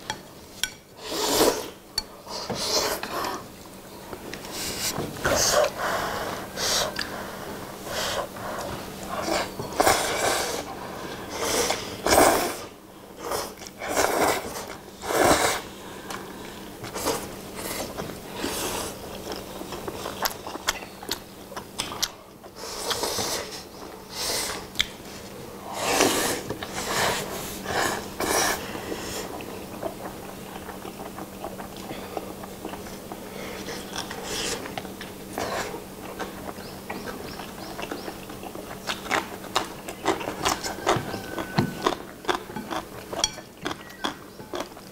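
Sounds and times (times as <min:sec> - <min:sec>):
people slurping noodles: 0:01.0 - 0:03.5, 0:04.4 - 0:20.2, 0:22.6 - 0:36.5
chewing: 0:15.9 - 0:44.9.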